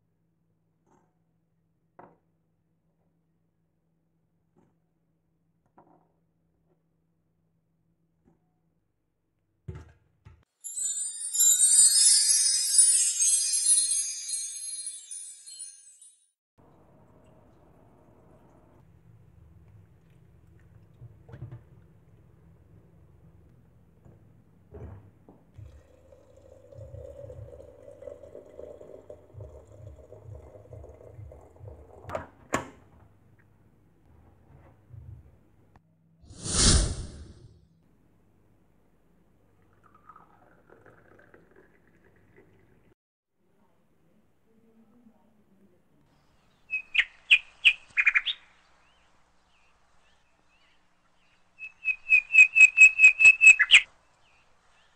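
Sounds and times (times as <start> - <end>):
water pouring into teapot: 25.6 - 32.1, 39.7 - 42.8
small bird calling: 46.7 - 48.6, 50.6 - 53.9.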